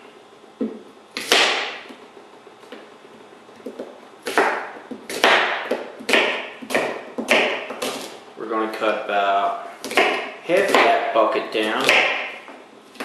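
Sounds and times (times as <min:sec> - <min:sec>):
knife chopping on plastic board: 0:00.6 - 0:02.0, 0:03.6 - 0:08.2, 0:09.8 - 0:13.0.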